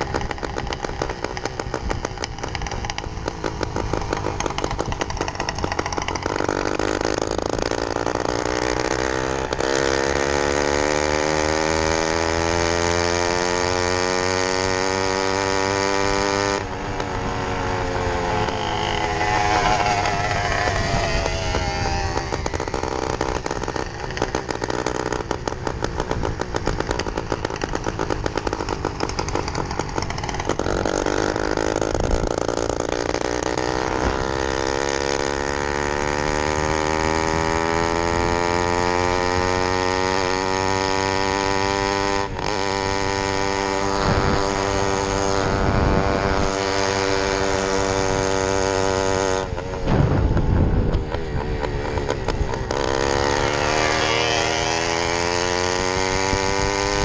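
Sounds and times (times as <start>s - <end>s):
small two-stroke engine running: 0.0s - 57.0s
wind rumble on microphone: 18.8s - 23.4s, 43.8s - 53.6s.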